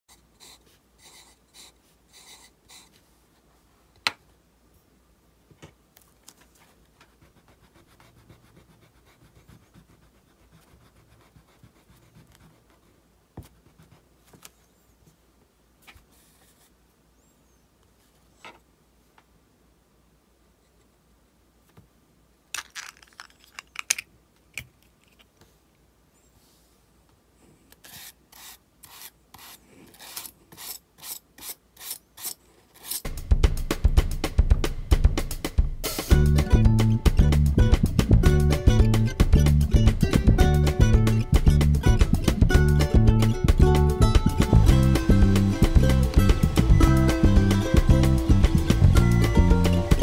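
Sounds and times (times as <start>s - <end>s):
pencil scratching on paper: 0.1s - 3.0s, 7.1s - 14.1s, 27.8s - 33.0s
plastic broom and dustpan scraping: 27.8s - 33.1s.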